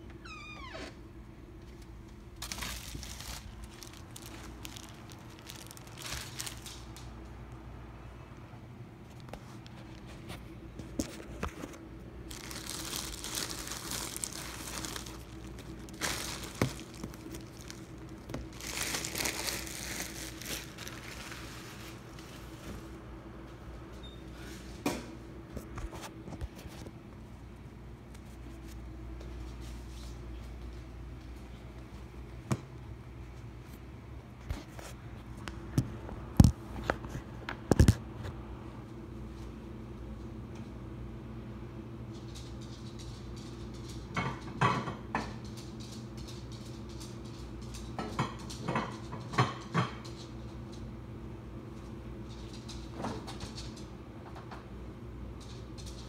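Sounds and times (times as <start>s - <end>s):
steady low hum: 0.0s - 56.0s
plastic bag crinkling: 2.4s - 7.2s, 11.6s - 22.5s.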